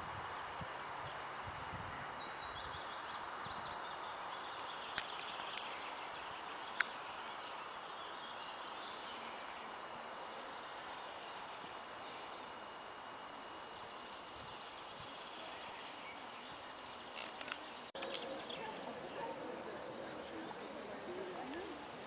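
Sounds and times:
steady hiss: 0.0 - 18.3
faint high bird chirps: 2.1 - 9.9.

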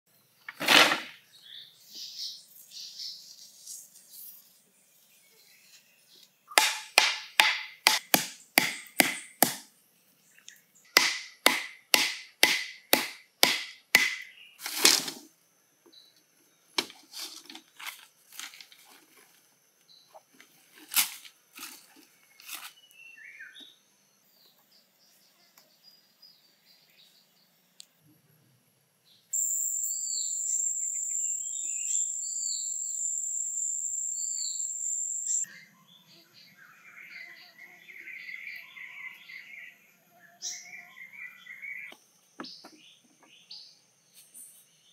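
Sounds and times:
wooden knocks pounding stakes: 6.5 - 9.7, 11.0 - 15.2.

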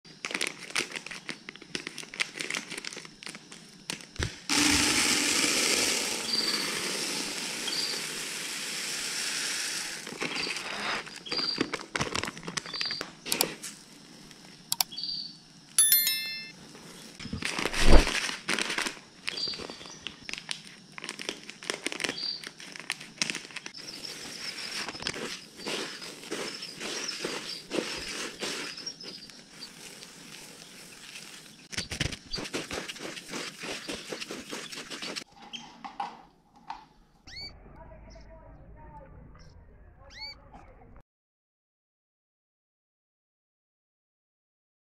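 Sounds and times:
plastic packet crinkling: 0.1 - 4.7, 11.2 - 13.0, 17.4 - 35.2
seed pouring into plastic basin: 4.2 - 11.3, 23.8 - 35.2.

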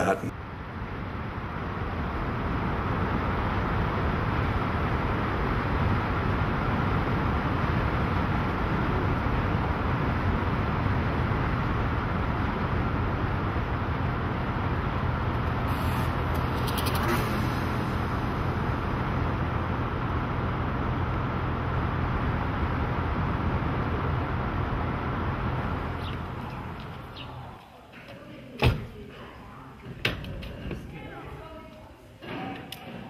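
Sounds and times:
car engine hum: 2.5 - 27.5.

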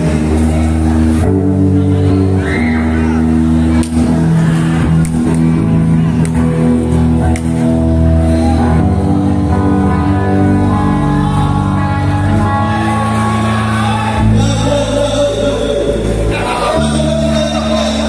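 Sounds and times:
live rock band playing: 0.0 - 18.0
person singing: 10.6 - 18.0.

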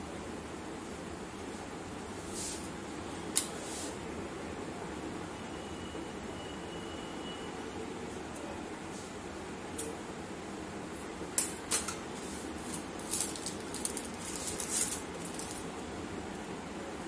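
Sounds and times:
steady background hiss: 0.0 - 17.0
plastic crinkling: 12.6 - 15.7.

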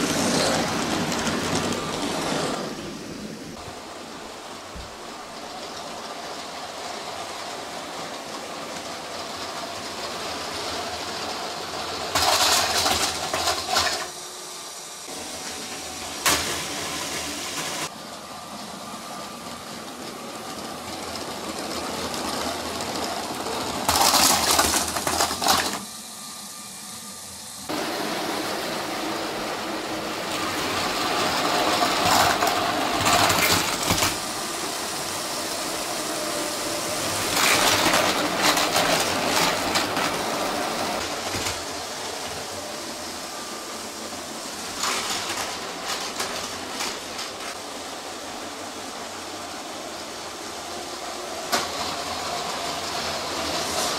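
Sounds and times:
toy train motor whir: 0.0 - 3.3, 5.3 - 16.5, 18.5 - 26.9, 29.5 - 48.9
wheels clacking over rail joints: 12.0 - 14.2.

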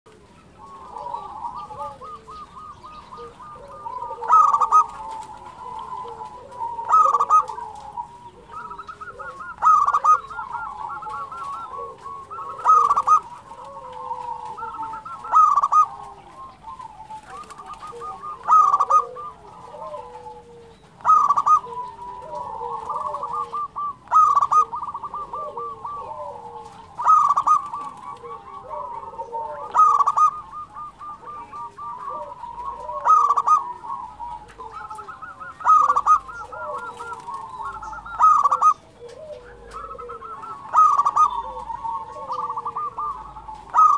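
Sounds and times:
dove cooing: 0.1 - 43.9.

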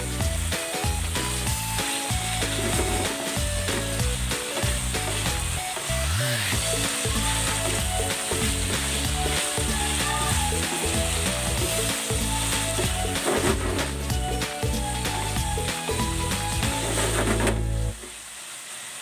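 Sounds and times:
background music: 0.0 - 18.0
food sizzling in a frying pan: 0.0 - 19.0
wooden spatula stirring: 9.4 - 14.0.

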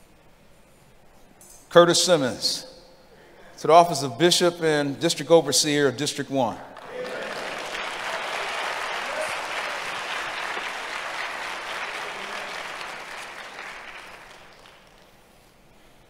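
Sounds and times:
congregation applauding: 6.8 - 15.3.

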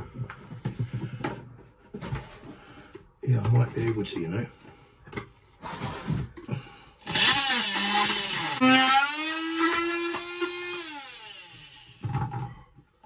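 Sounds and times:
power tool motor humming: 7.0 - 12.1.

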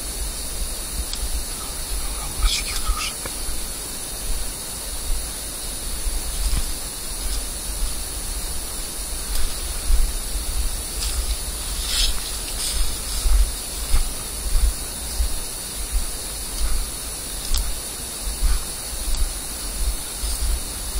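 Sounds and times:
microphone hiss: 0.0 - 20.9
low rumble on microphone: 3.4 - 20.9
footsteps through brush: 5.8 - 20.9.

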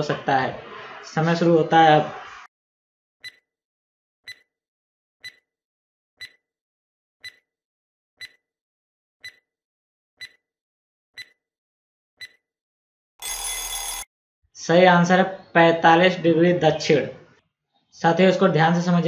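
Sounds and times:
timer ticks: 3.2 - 3.4, 4.3 - 4.5, 5.2 - 5.4, 6.2 - 6.4, 7.2 - 7.4, 8.2 - 8.4, 9.2 - 9.4, 10.2 - 10.4, 11.2 - 11.4, 12.2 - 12.4.

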